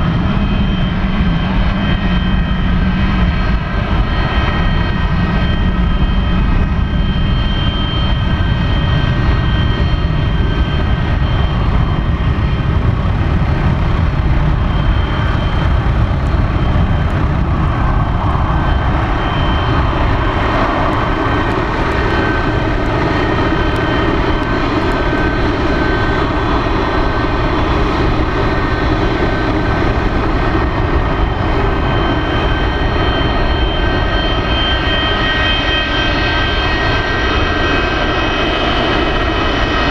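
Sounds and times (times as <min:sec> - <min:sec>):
high engine whine: 0:00.0 - 0:39.9
jet engines rumbling: 0:00.0 - 0:39.9
harsh jet noise passing: 0:14.9 - 0:33.0.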